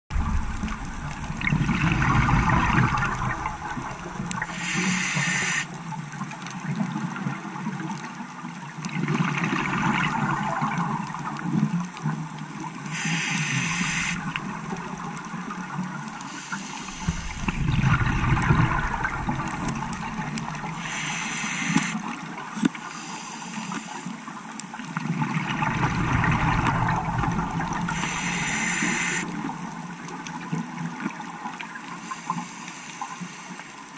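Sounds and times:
exhaust bubbling: 0.1 - 4.5, 16.8 - 21.2
regulator inhale hiss: 3.6 - 5.8, 12.9 - 14.4, 16.2 - 17.8, 19.5 - 24.3, 27.7 - 29.4, 32.0 - 33.7.

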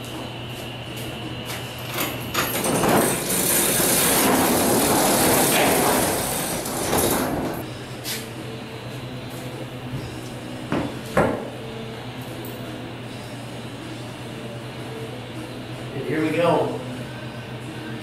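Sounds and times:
sliding door rolling rattle: 1.8 - 7.6.

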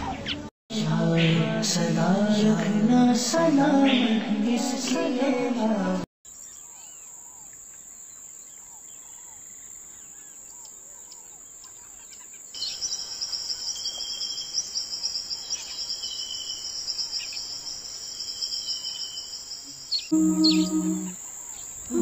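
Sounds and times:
faint bird chirps: 6.3 - 22.0
insects trilling: 6.3 - 22.0.

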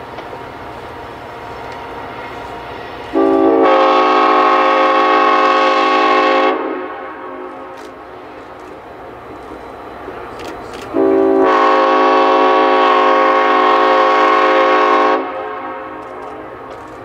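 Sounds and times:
train running rumble: 0.0 - 17.0
locomotive air horn blast: 3.1 - 7.8, 10.9 - 16.2.

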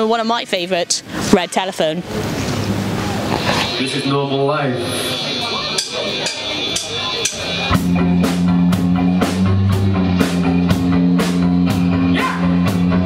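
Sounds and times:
rock band playing: 4.9 - 13.0
drum hits: 5.8 - 13.0.

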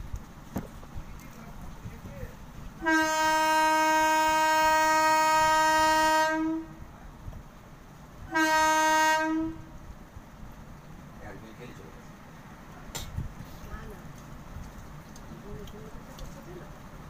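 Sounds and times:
horn blasts: 2.8 - 6.8, 8.3 - 9.7.

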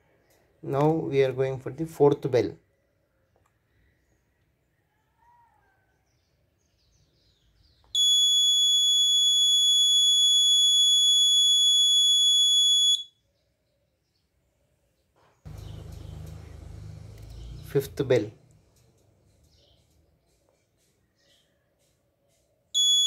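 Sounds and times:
high-pitched buzzer beep: 22.8 - 23.0.

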